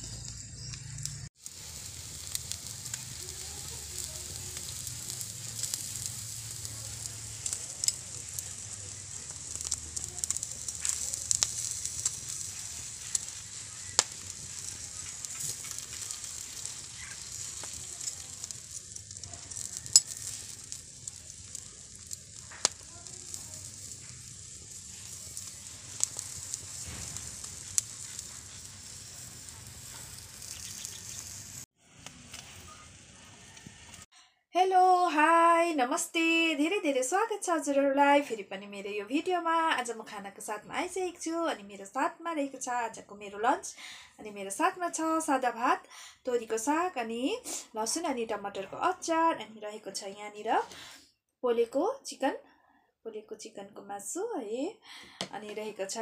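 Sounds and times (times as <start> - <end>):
fire crackling and popping: 0.0 - 34.1
meat sizzling over fire: 0.0 - 34.1.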